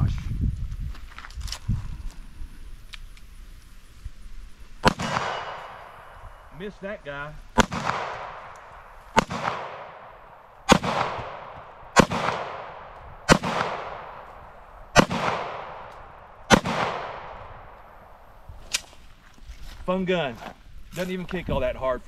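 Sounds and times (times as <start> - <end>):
pistol shots with echo: 4.8 - 6.2, 7.6 - 18.0.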